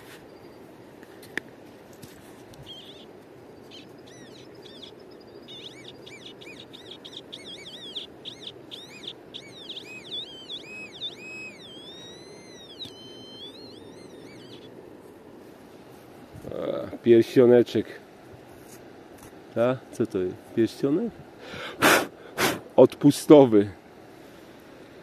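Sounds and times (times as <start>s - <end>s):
low background hiss: 0.0s - 25.0s
metal detector warbling tones: 4.0s - 14.7s.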